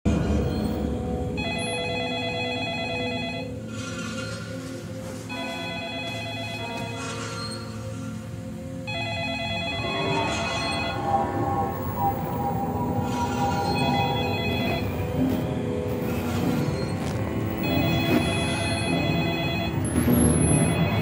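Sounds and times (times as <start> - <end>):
low dark film score: 0.0 - 21.0
warbling electronic phone ring: 1.4 - 3.6, 5.3 - 7.6, 8.9 - 15.3, 17.5 - 21.0.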